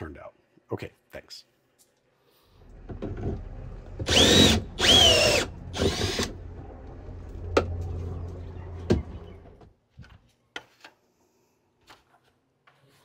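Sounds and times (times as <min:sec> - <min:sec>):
low hum: 0:02.6 - 0:09.6
cordless drill whine: 0:04.0 - 0:06.4.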